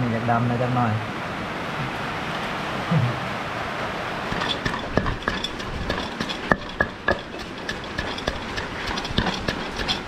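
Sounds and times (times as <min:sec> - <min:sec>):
heavy rain hiss: 0:00.0 - 0:05.0
kitchen utensils clicking: 0:04.3 - 0:10.0.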